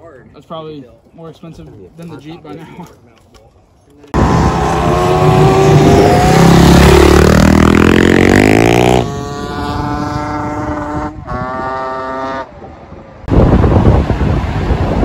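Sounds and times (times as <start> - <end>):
vehicle engine revving: 4.2 - 12.6.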